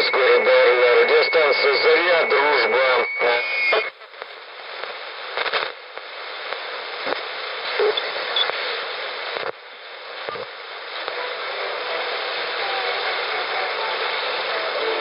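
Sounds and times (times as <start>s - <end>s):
radio whistle: 0.0s - 3.9s
radio static hiss: 0.0s - 15.0s.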